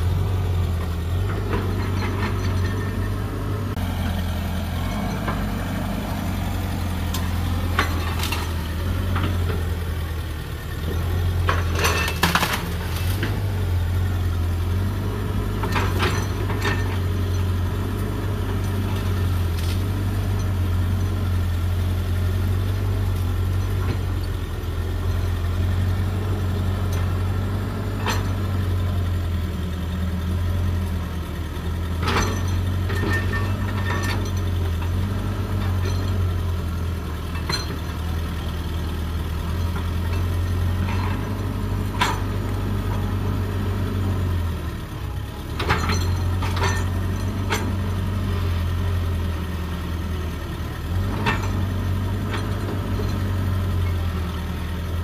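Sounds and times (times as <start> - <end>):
diesel engine droning: 0.0 - 55.0
metal clanks and knocks: 0.6 - 3.8, 4.8 - 10.0, 10.6 - 21.2, 23.1 - 28.8, 31.8 - 36.7, 37.3 - 38.2, 39.4 - 43.4, 45.4 - 48.2.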